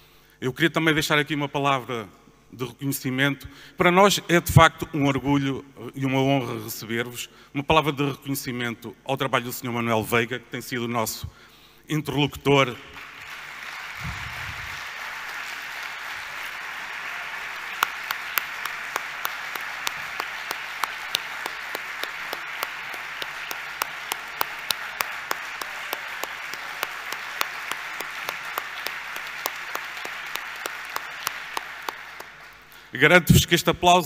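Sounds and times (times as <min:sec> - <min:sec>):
audience applauding: 0:12.9 - 0:32.8
rhythmic sharp claps: 0:12.9 - 0:32.8.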